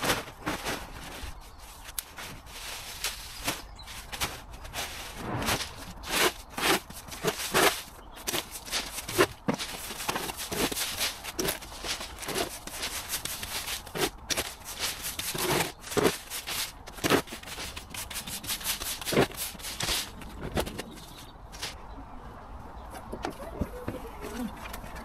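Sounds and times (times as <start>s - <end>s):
push brooms sweeping leaves: 0.0s - 20.2s.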